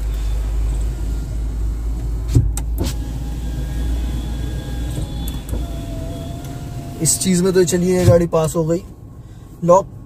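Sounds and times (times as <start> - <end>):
power window motor hum: 0.1 - 7.8.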